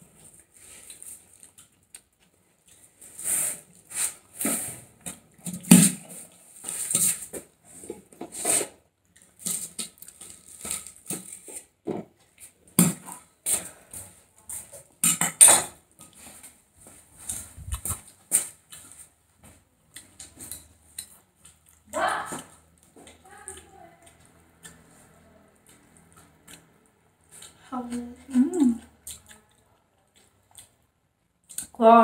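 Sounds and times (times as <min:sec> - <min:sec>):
person chewing: 0:00.1 - 0:04.3, 0:09.0 - 0:11.7, 0:17.2 - 0:19.1, 0:19.9 - 0:31.8.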